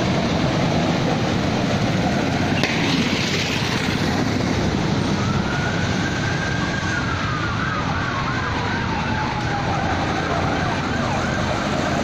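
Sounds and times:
siren wailing: 4.8 - 12.0
siren yelping: 5.1 - 12.0.

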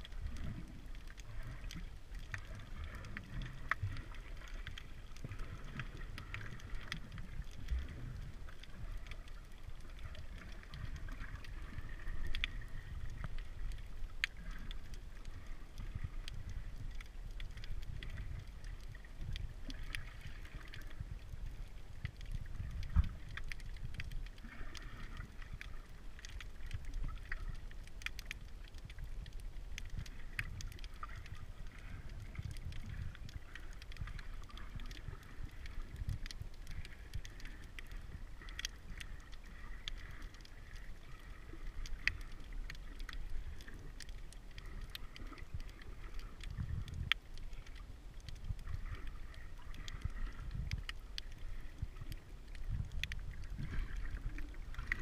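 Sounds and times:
underwater clicks and crackles: 0.0 - 55.0
underwater rumble of moving water: 0.0 - 55.0.

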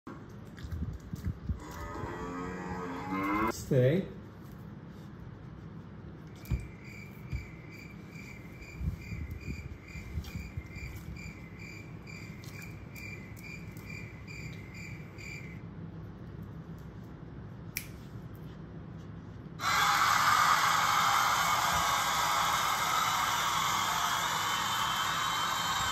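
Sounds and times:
cricket chirping: 6.4 - 15.6.

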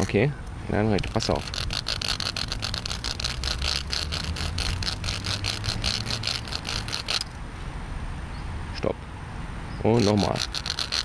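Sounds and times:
stick rasping over notches: 0.0 - 7.4, 10.0 - 11.0.

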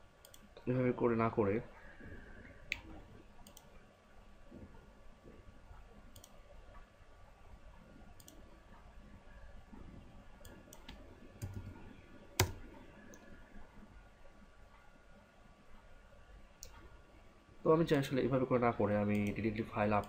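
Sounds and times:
faint steady hum: 0.0 - 20.0
computer mouse clicking: 0.2 - 0.6, 2.7 - 3.7, 6.1 - 6.4, 8.2 - 8.4, 10.4 - 11.8, 12.4 - 13.3, 16.6 - 16.9.

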